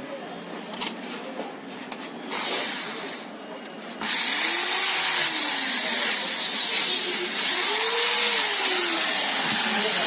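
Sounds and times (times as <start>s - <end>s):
cordless drill running: 2.3s - 3.3s, 4.0s - 10.0s.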